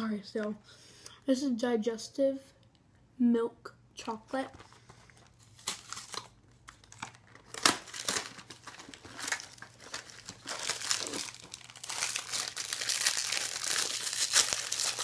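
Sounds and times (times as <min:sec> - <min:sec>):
plastic wrapper crinkling: 0:04.5 - 0:15.0.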